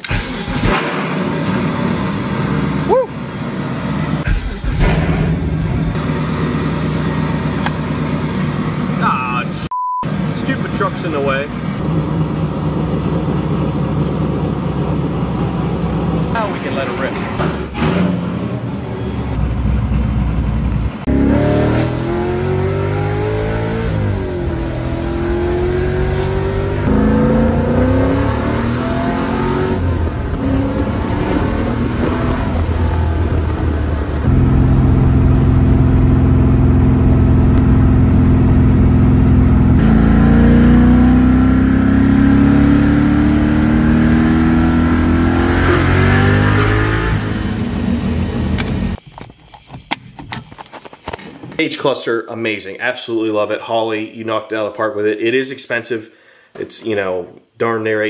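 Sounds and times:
car engine accelerating hard: 0:21.0 - 0:49.0.

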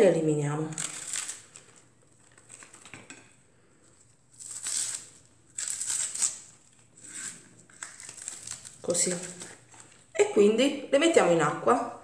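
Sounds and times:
onion leaves tearing and crunching: 0:00.6 - 0:02.9, 0:04.0 - 0:10.0.

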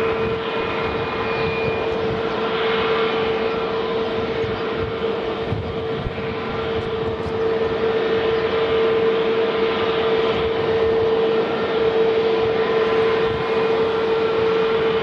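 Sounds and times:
jet engines idling: 0:00.0 - 0:15.0.

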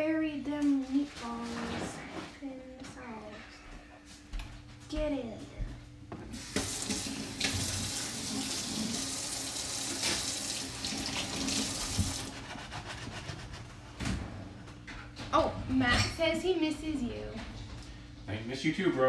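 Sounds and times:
water running from tap: 0:06.3 - 0:12.3.

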